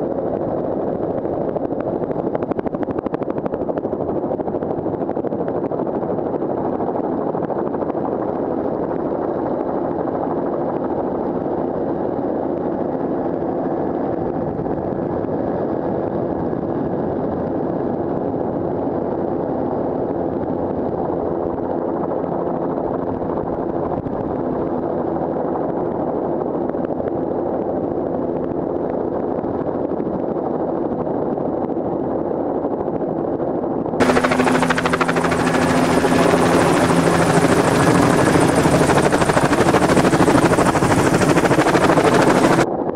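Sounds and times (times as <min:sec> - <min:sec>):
helicopter drone from inside: 0:00.0 - 0:42.9
helicopter passing overhead: 0:00.0 - 0:42.9.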